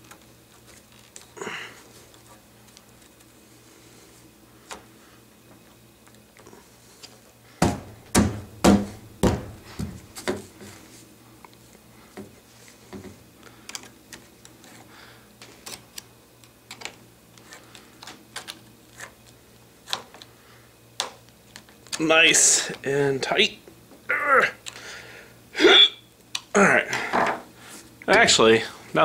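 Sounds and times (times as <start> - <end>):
knocks: 7.6 - 10.0.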